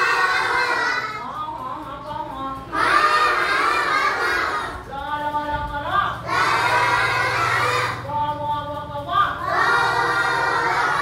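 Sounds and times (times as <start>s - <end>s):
children chanting in unison: 0.0s - 1.3s, 2.7s - 4.9s, 6.2s - 8.0s, 9.4s - 11.0s.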